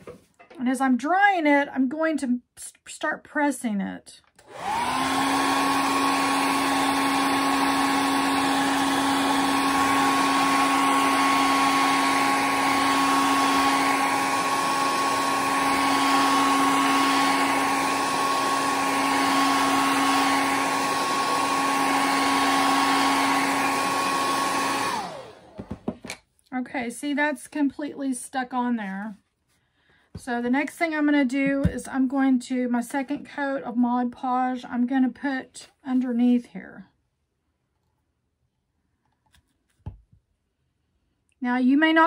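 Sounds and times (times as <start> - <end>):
hair dryer running: 4.4 - 26.2.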